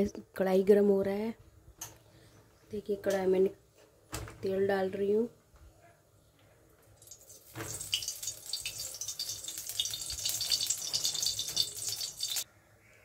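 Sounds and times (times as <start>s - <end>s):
oil sizzling in a pan: 7.0s - 12.4s.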